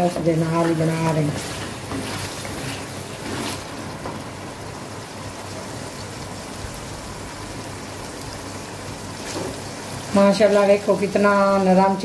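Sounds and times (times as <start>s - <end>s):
chicken sizzling in oil: 0.0s - 12.0s
wooden spatula scraping pan: 0.6s - 3.7s.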